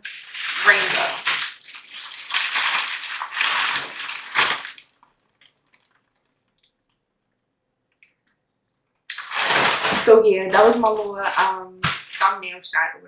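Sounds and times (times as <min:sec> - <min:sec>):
plastic bag crinkling: 0:00.0 - 0:06.9, 0:09.0 - 0:12.6.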